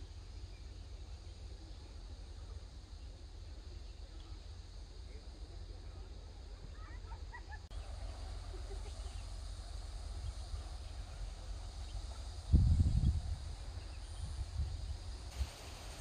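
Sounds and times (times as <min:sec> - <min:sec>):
wind rumble on microphone: 0:12.3 - 0:16.0.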